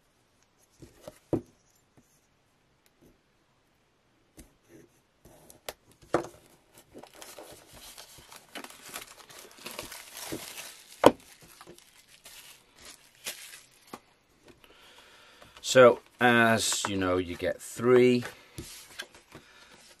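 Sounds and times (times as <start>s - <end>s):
plastic shrink-wrap crinkling: 7.0s - 14.1s.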